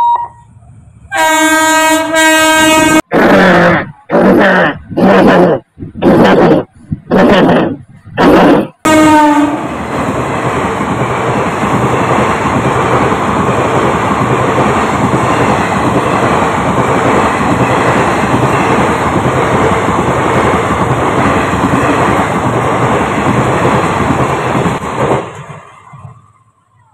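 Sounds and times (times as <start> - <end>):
train rumbling past: 0.0 - 26.9.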